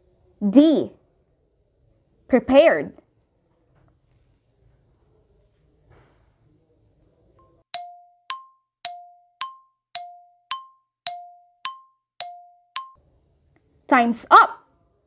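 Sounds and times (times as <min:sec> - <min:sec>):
two-note ringing chime strikes: 0:07.8 - 0:13.0.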